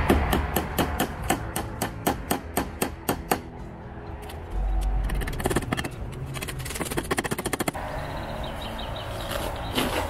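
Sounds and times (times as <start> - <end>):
hammer striking: 0.0 - 3.5.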